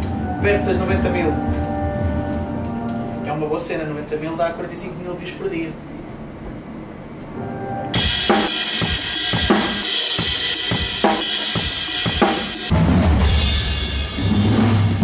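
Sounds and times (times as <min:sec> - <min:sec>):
cymbal wash: 0:07.9 - 0:15.0
snare and bass drum strikes: 0:08.0 - 0:15.0.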